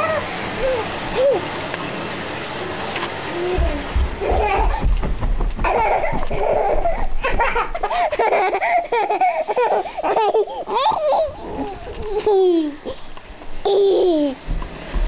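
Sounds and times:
toddler laughing and squealing: 0:00.0 - 0:01.5, 0:03.3 - 0:04.9, 0:05.6 - 0:13.0, 0:13.6 - 0:14.4.

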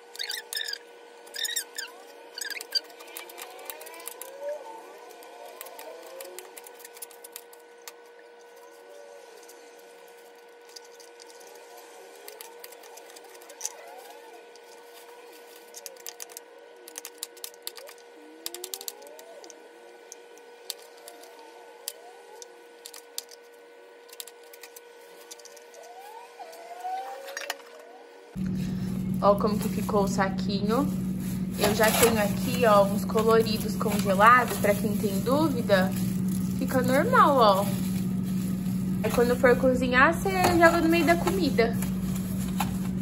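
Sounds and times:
faint steady hum: 0:00.0 - 0:43.0
plastic bag crinkling: 0:01.4 - 0:19.5, 0:28.4 - 0:43.0.

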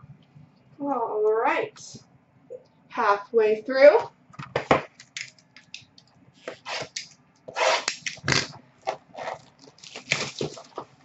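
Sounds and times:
cardboard rustling: 0:08.8 - 0:11.0.

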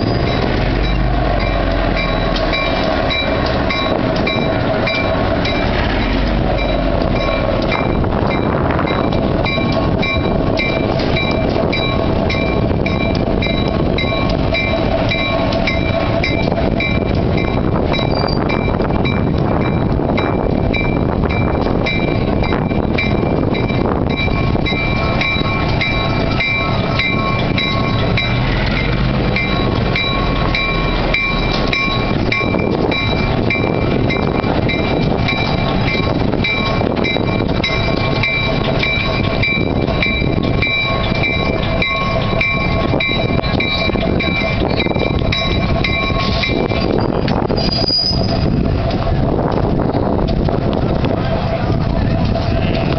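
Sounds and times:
diesel locomotive engine running: 0:00.0 - 0:52.9.

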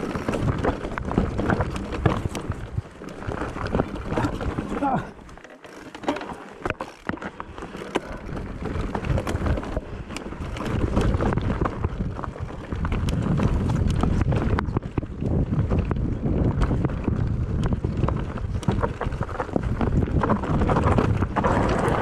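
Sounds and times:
clicks and knocks on trail: 0:00.0 - 0:22.0
wind buffeting microphone: 0:08.2 - 0:22.0.

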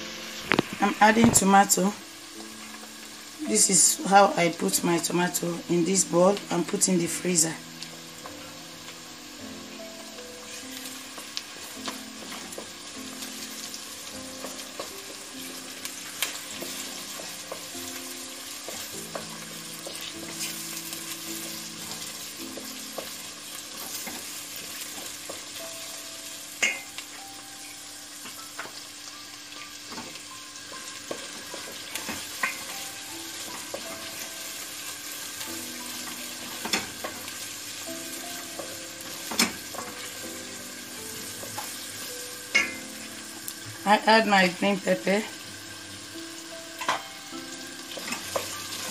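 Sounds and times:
onions and garlic sizzling in oil: 0:00.0 - 0:48.9.

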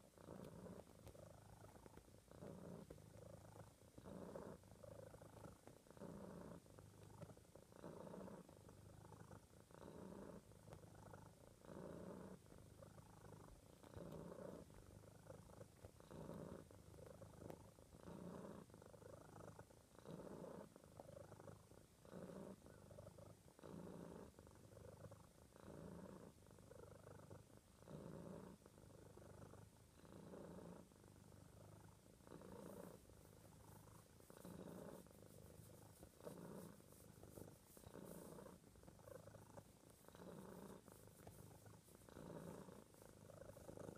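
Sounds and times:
cat purring: 0:00.0 - 0:43.9.

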